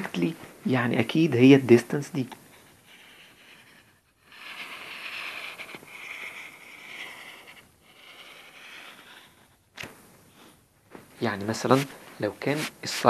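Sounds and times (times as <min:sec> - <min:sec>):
pen scratching on paper: 0:02.6 - 0:09.6.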